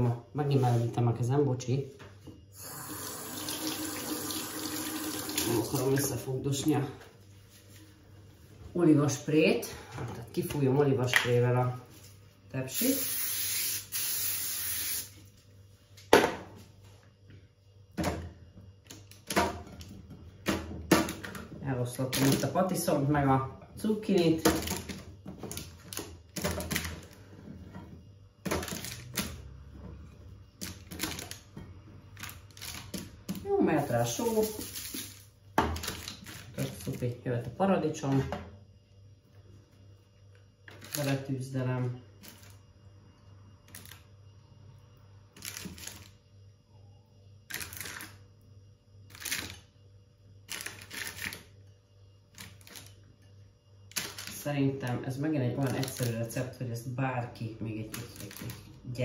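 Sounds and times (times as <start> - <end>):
baking parchment crinkling: 45.4 - 46.2, 50.5 - 51.5, 55.6 - 56.4, 57.8 - 58.7.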